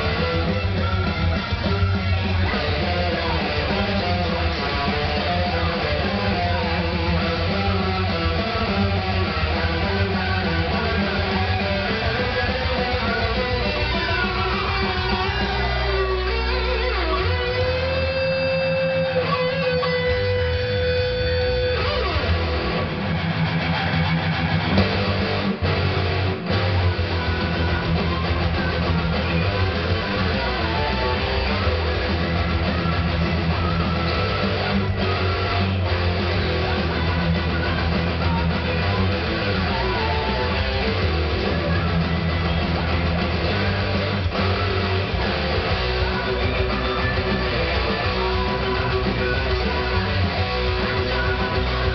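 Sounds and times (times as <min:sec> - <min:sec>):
backing track: 0:00.0 - 0:51.9
electric guitar playing metal: 0:00.0 - 0:51.9.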